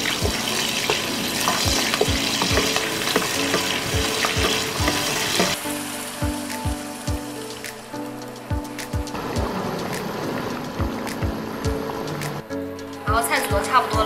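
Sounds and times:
food sizzling in hot oil: 0.0s - 8.3s.

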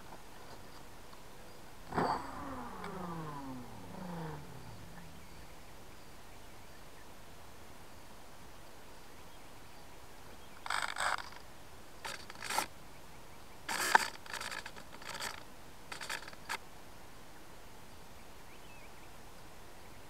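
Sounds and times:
faint camera hiss: 0.0s - 20.0s
scraping and knocking of model plane: 10.6s - 11.4s, 12.0s - 12.7s, 13.7s - 16.6s.

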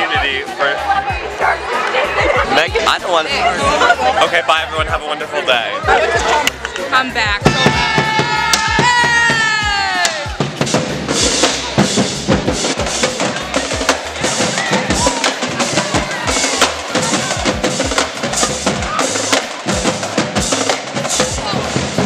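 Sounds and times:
snare and tenor drums: 7.4s - 22.0s.

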